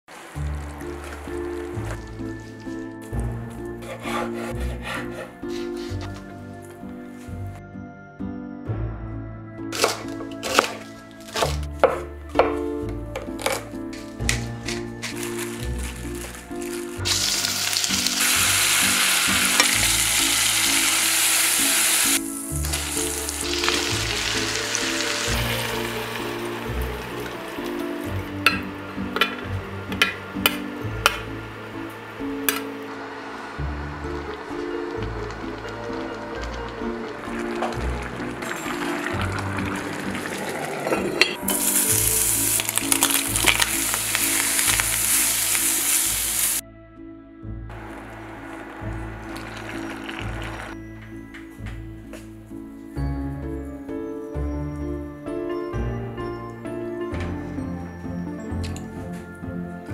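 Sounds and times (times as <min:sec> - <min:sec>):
vegetables sauteing: 0:00.0 - 0:06.2, 0:09.8 - 0:12.6, 0:13.2 - 0:46.6, 0:47.7 - 0:50.8
background music: 0:00.1 - 0:59.9
spatula stirring in pot: 0:03.6 - 0:06.2
meat sizzling in oil: 0:15.1 - 0:27.4, 0:34.5 - 0:46.6.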